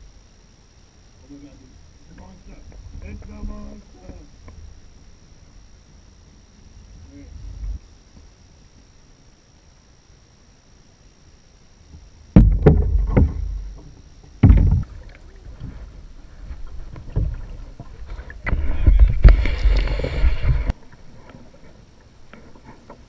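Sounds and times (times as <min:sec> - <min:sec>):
knocks and bumps on kayak: 0:12.3 - 0:15.7
paddle strokes splashing water: 0:14.8 - 0:23.0.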